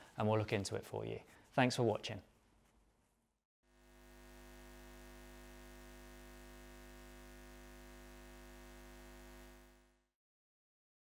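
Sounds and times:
faint low hum: 3.8 - 10.0.

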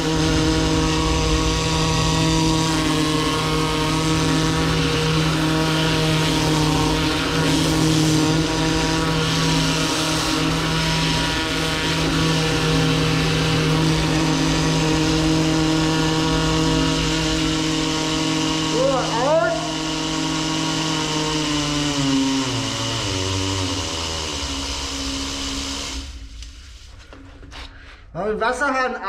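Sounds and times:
high-pressure water hiss: 0.0 - 20.5
drain-jetting machine hum: 0.0 - 27.2.

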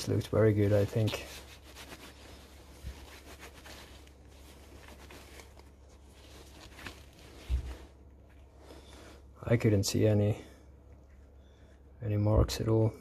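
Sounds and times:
cloth rubbing on steel: 0.0 - 9.1.

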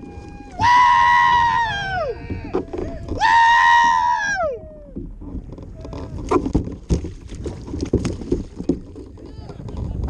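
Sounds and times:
water splashing: 0.0 - 10.0
knocks against kayak: 5.0 - 10.0.

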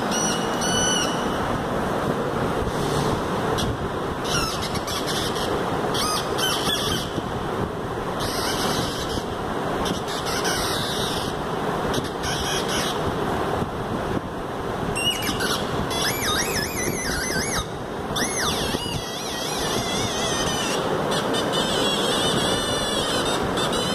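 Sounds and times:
squealing electronic tones: 0.0 - 1.4, 3.6 - 7.2, 8.2 - 9.2, 9.8 - 13.0, 15.0 - 23.9.

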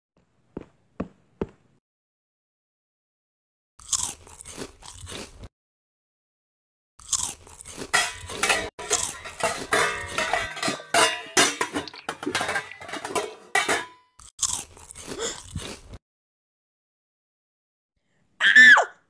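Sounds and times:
crunching and chewing food: 3.8 - 5.5, 7.0 - 9.2, 14.2 - 16.0.

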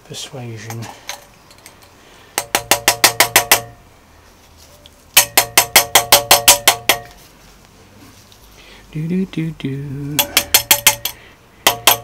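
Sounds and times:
light hammer taps on metal: 10.2 - 12.0.

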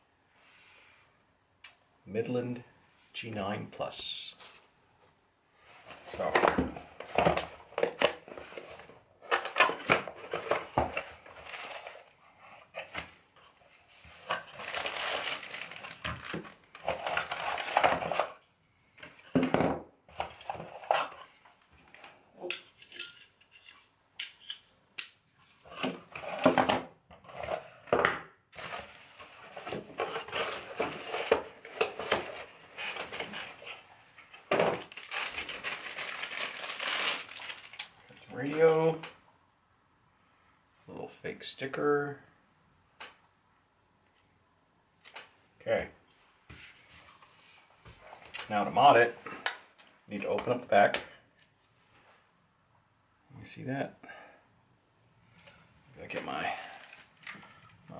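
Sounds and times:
packaging rustling and crinkling: 5.8 - 18.5, 28.5 - 39.0, 56.1 - 57.8.

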